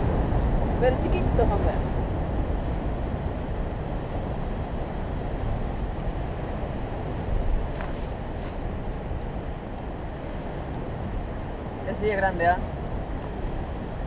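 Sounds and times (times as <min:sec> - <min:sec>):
breaking surf: 0:00.0 - 0:14.0
wind buffeting microphone: 0:00.0 - 0:14.0.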